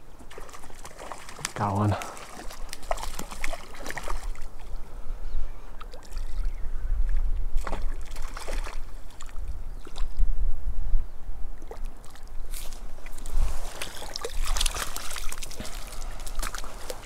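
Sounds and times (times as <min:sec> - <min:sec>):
fish splashing in water: 0:00.2 - 0:04.7, 0:07.6 - 0:10.1, 0:11.6 - 0:17.0
wind rumble on microphone: 0:04.7 - 0:15.4.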